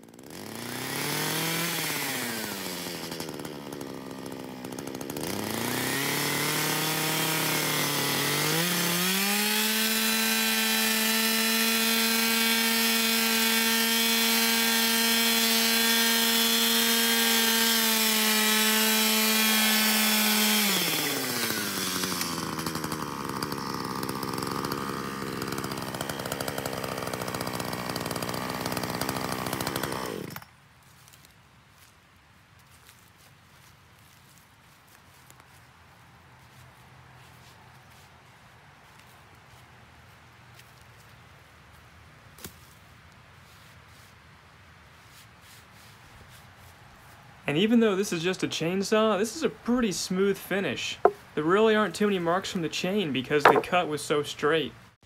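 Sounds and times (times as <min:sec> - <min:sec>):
chainsaw cutting through log: 0:00.0 - 0:31.2, 0:37.3 - 0:39.6, 0:47.5 - 0:54.8.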